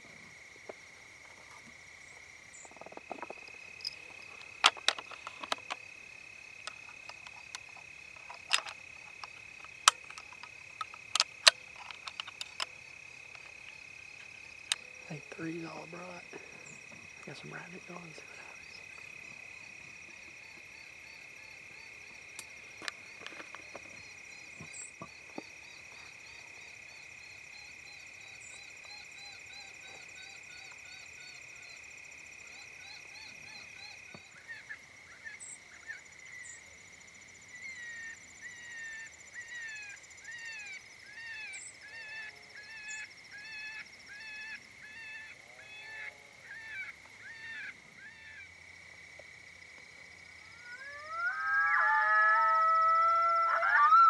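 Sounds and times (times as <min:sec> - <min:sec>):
high insect trill: 0:00.0 - 0:54.0
rabbit distress squealing from caller: 0:50.6 - 0:54.0.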